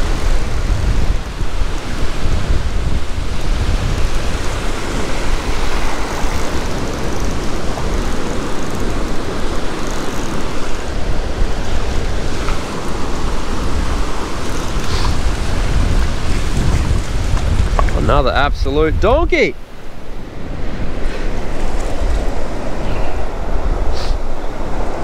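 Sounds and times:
surf breaking on beach: 0.0 - 25.0
wind buffeting microphone: 0.0 - 25.0.

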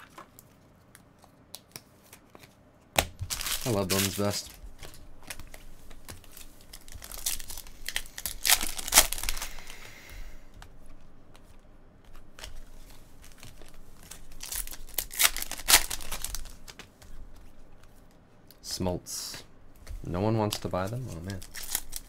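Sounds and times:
foil wrapper tearing and crinkling: 3.2 - 9.8, 13.2 - 16.8, 20.5 - 22.0.

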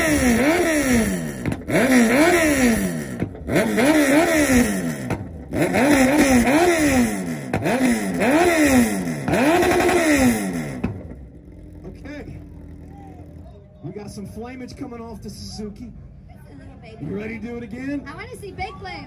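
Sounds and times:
motorcycle engine revving: 0.0 - 15.4.

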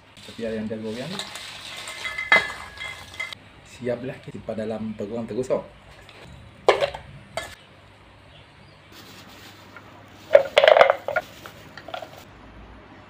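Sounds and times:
crisp rolls rattling: 0.2 - 3.4, 9.0 - 12.3
spoon clattering against bowl and jar: 1.1 - 3.4.

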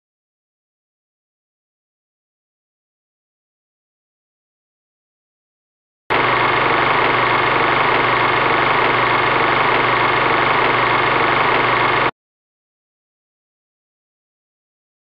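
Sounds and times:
loud steady droning: 6.1 - 12.1.

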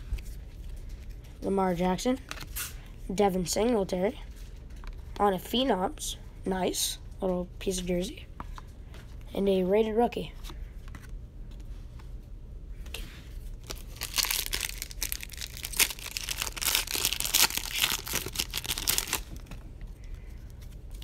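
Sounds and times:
foil wrapper tearing and crinkling: 13.6 - 19.6.

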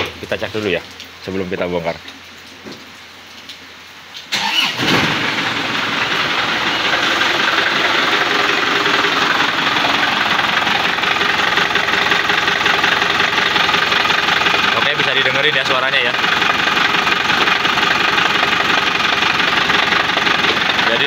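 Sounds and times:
diesel engine starting and idling: 4.3 - 21.0.

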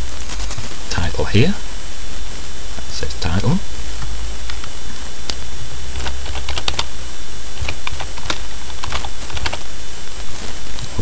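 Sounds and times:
low hum and hiss: 0.0 - 11.0
keyboard typing: 6.0 - 6.9, 7.6 - 9.6.

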